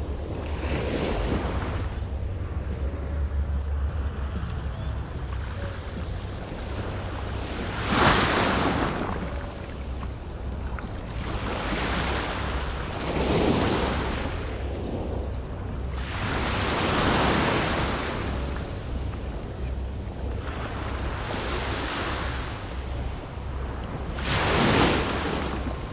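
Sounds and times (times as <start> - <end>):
small waves breaking on sand: 24.1 - 25.9.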